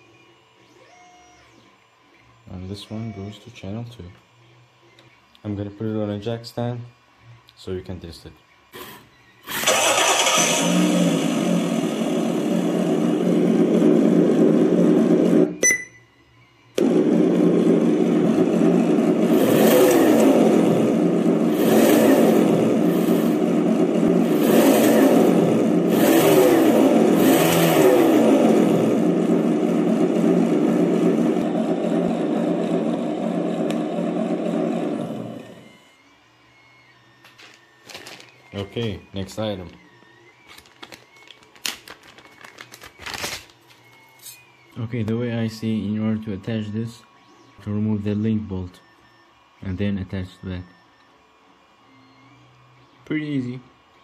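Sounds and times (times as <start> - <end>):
simulated engine revving from speaker: 9.4 - 15.6, 16.8 - 35.7.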